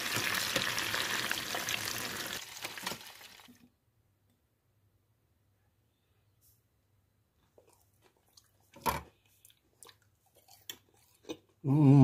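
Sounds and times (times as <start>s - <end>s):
chicken deep-frying in oil: 0.0s - 3.7s.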